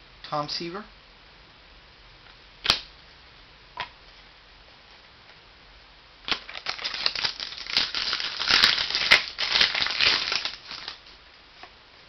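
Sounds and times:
plastic packaging crinkling: 6.3 - 11.2.

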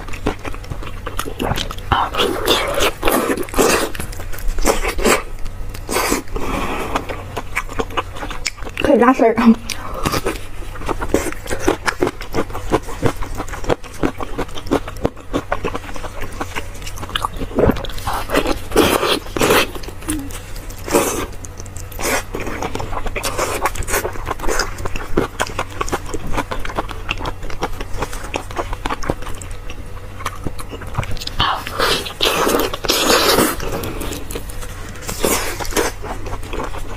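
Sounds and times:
wet chewing and smacking: 0.0 - 36.9
sucking mouth sounds: 17.4 - 22.6.

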